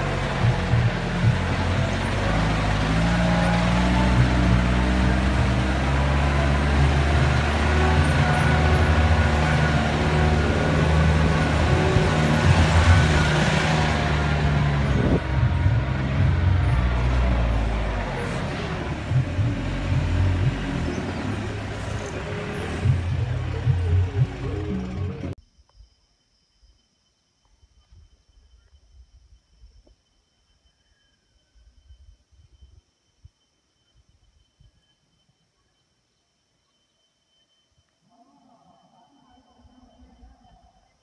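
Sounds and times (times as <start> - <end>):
tyre and road noise: 0.0 - 25.4
vehicle engine under load: 0.0 - 25.4.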